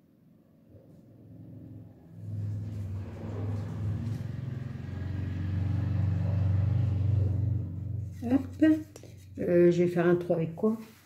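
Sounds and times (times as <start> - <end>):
low engine rumble: 0.8 - 9.5.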